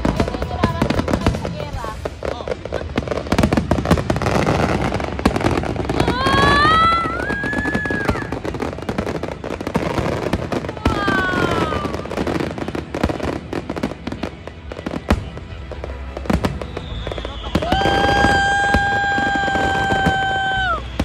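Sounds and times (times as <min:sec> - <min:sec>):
fireworks bangs and crackling: 0:00.0 - 0:21.0
high gliding firework whistle: 0:04.1 - 0:12.5, 0:16.3 - 0:21.0.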